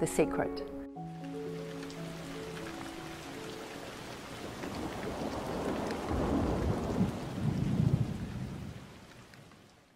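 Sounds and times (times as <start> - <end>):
steady rain: 1.0 - 9.9
low thunder rumble: 4.4 - 9.0.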